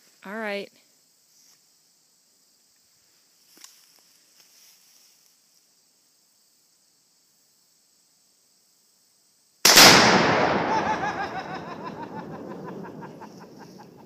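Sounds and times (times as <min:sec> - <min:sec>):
insects buzzing: 0:00.0 - 0:14.0
loud explosion blast: 0:09.7 - 0:13.3
rolling echo: 0:09.7 - 0:14.0.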